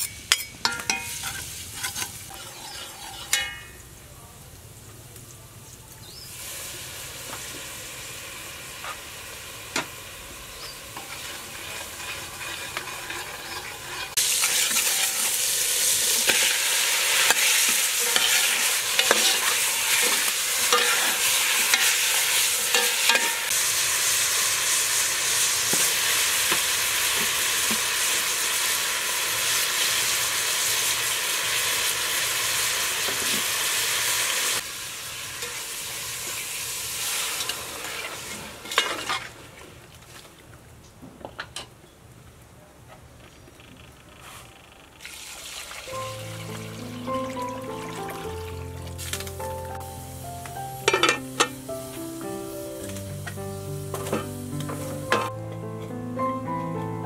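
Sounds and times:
meat frying in oil: 0:06.2 - 0:39.7, 0:45.0 - 0:51.5.

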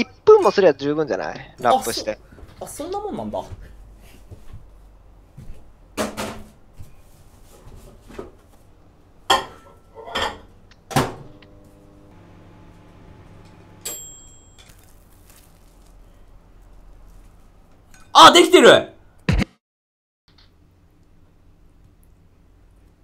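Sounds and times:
microwave oven humming: 0:10.8 - 0:14.8
microwave beep: 0:11.3 - 0:14.7.

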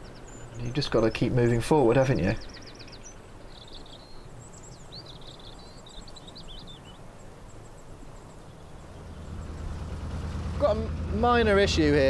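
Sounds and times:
songbird chirping: 0:00.0 - 0:12.0
low background rumble: 0:08.7 - 0:12.0.

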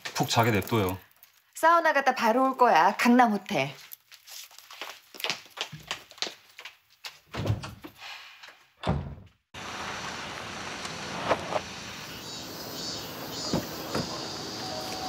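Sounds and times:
car tyres rolling on paving: 0:09.6 - 0:15.0.

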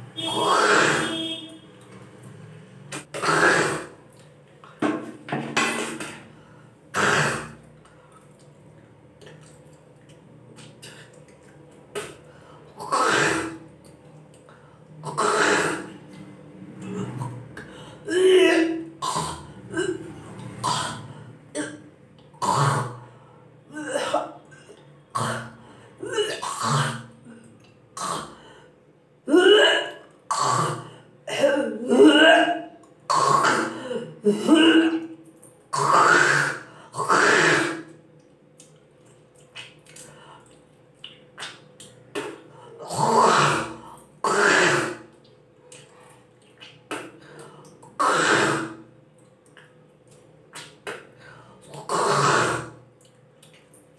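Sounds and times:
woman hawking and retching: 0:26.0 - 0:27.5, 0:29.3 - 0:30.0, 0:31.3 - 0:35.2.

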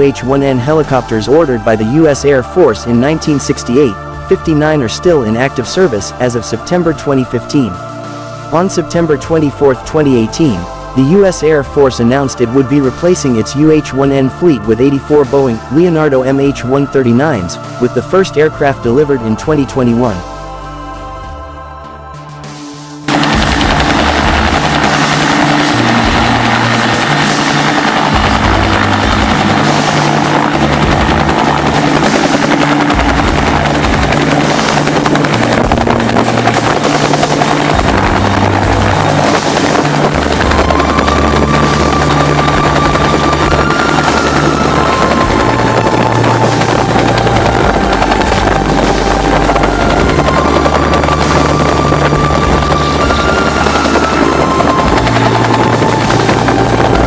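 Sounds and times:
helicopter rotor beating: 0:00.0 - 0:20.5, 0:23.1 - 0:57.0
high turbine whine: 0:00.0 - 0:57.0.

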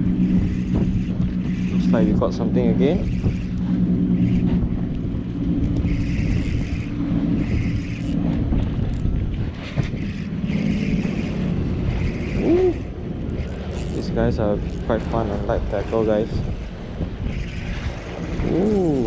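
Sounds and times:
engine drone: 0:00.0 - 0:19.0
wind rumbling on microphone: 0:00.0 - 0:19.0.

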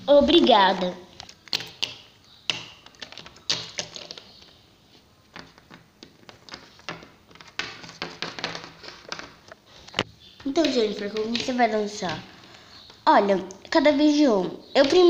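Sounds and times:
plastic figurines tapping on table: 0:01.5 - 0:04.3, 0:05.3 - 0:09.4, 0:10.4 - 0:12.2.

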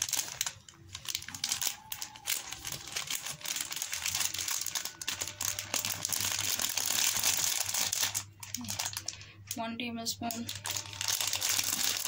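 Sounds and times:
plastic bag crinkling: 0:00.0 - 0:09.6, 0:10.2 - 0:12.0.

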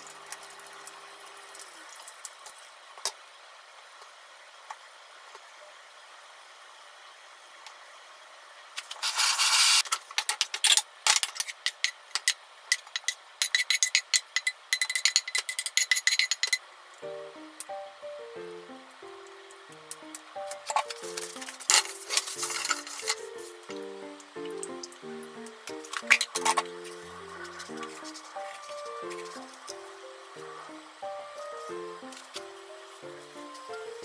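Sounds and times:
wooden spatula scraping frying pan: 0:20.7 - 0:23.7, 0:25.7 - 0:29.8.

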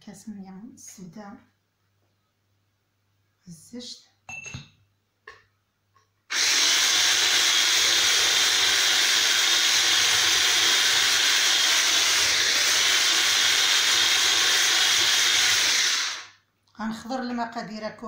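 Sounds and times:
electric whisk running: 0:06.3 - 0:16.3.

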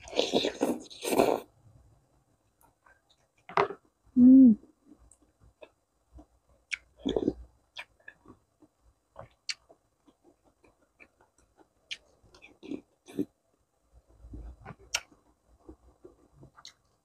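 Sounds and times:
slurping noodles: 0:00.0 - 0:01.5.

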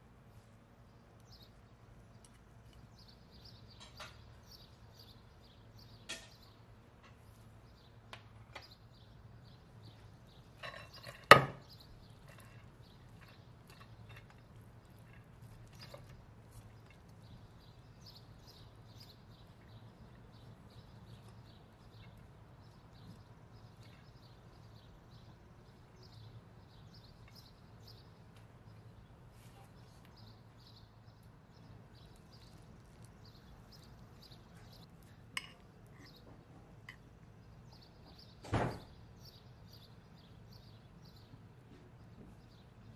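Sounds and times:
utensils knocking against a pot: 0:06.1 - 0:06.4, 0:10.6 - 0:14.4, 0:35.4 - 0:36.2.

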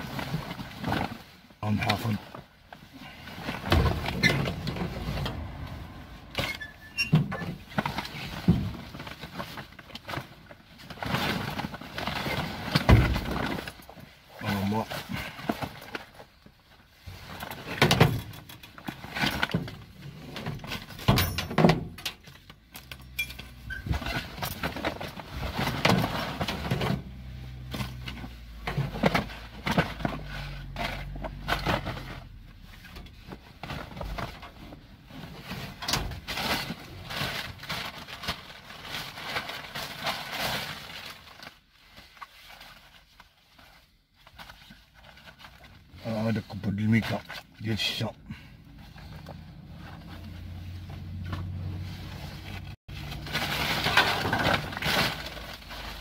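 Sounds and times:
plastic bags rustling and crinkling: 0:00.0 - 0:21.1, 0:21.8 - 0:56.0
low steady hum: 0:02.2 - 0:09.0.

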